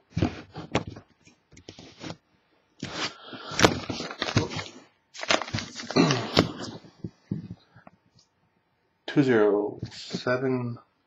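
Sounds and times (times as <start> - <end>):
wrapping crinkling and tearing: 2.8 - 6.8.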